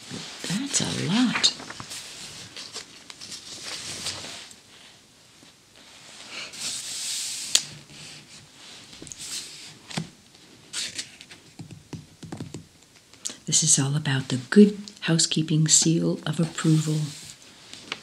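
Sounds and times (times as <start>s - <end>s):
magazine pages swishing: 0.1s - 4.5s.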